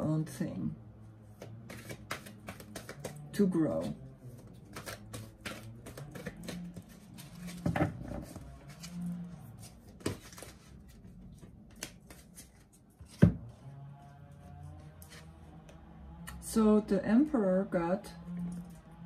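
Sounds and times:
cards riffling: 1.7 - 3.2, 4.4 - 7.6.

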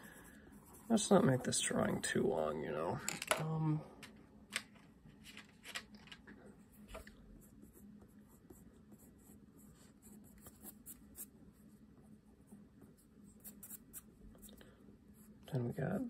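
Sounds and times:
pencil scratching on paper: 0.0 - 1.5, 7.4 - 11.6, 12.5 - 14.1.

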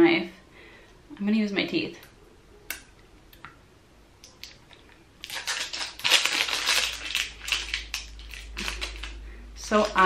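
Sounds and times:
plastic crinkling and crackling: 4.2 - 10.0.

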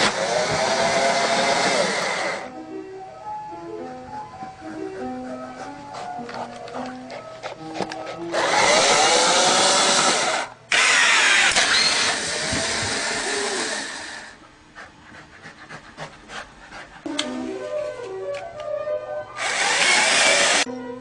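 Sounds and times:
loud electric motor running: 0.0 - 2.5, 8.3 - 14.4, 19.4 - 20.7.

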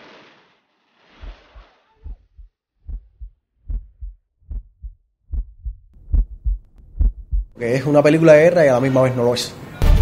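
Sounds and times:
heartbeat thumps: 2.0 - 7.6.

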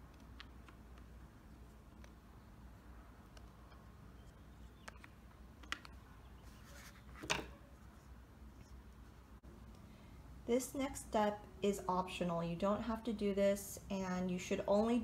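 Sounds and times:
faint clicks and taps: 0.0 - 2.2, 3.2 - 6.0.

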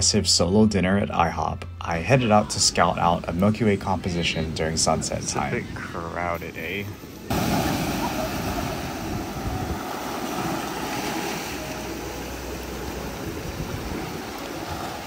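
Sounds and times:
small ocean waves on sand and rock: 7.2 - 15.0.

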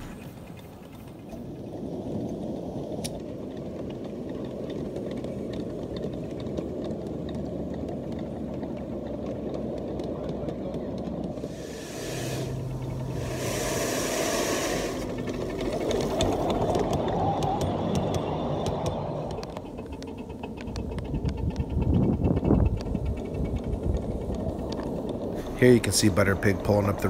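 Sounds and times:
wheels rumbling on rail: 0.0 - 27.0
steam hissing: 11.3 - 17.6, 25.3 - 27.0.

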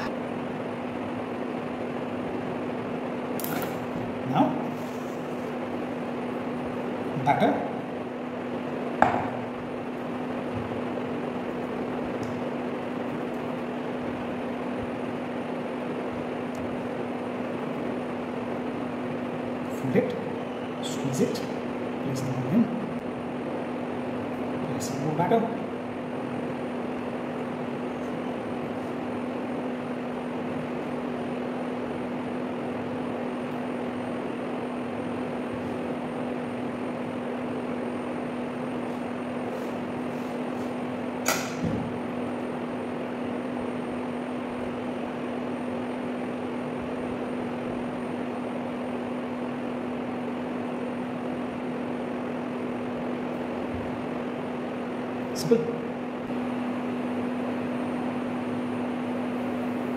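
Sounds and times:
fan motor humming: 0.0 - 59.9
sharp click: 3.4 - 3.8, 41.2 - 41.6.

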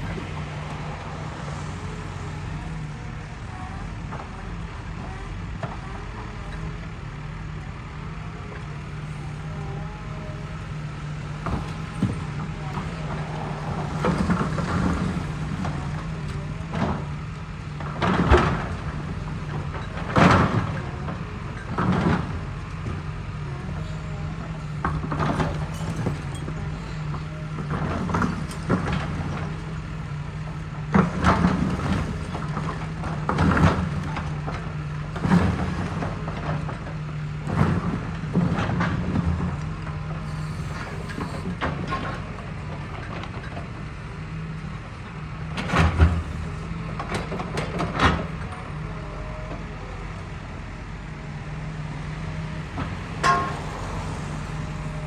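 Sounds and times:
excavator diesel engine running: 0.0 - 55.0.

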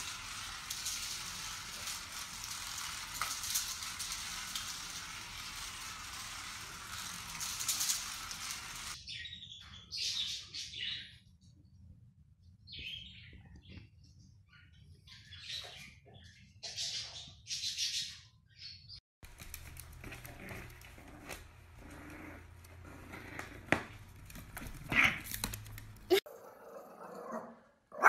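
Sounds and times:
bird chirping: 12.6 - 19.0.

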